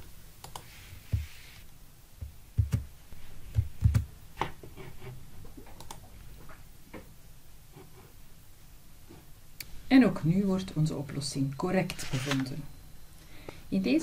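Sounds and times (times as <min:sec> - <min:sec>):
keyboard and mouse clicks: 0:00.4 - 0:00.7, 0:02.6 - 0:02.9, 0:03.5 - 0:04.1, 0:05.7 - 0:06.1.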